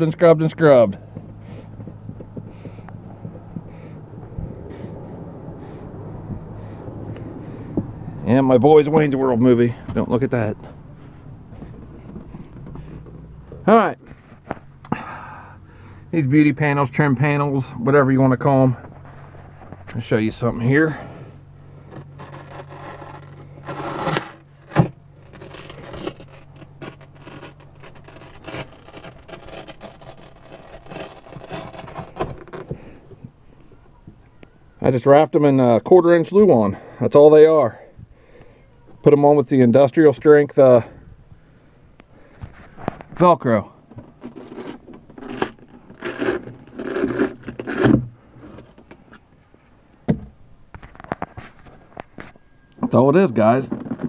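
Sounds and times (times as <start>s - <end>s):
panel scraping against wall: 21.8s - 32.9s
velcro ripping: 22.0s - 32.7s, 44.1s - 48.7s.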